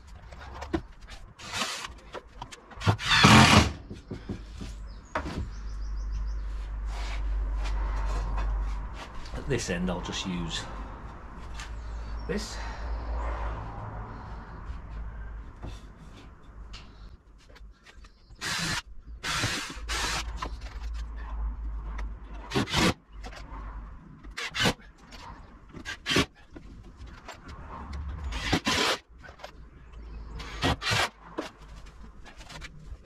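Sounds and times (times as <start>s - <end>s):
drill driving screws into wood: 1.4s - 1.9s, 2.8s - 3.8s, 18.4s - 20.5s, 22.5s - 23.0s, 28.3s - 29.0s, 30.4s - 31.2s
wood being rubbed and handled: 6.4s - 9.5s.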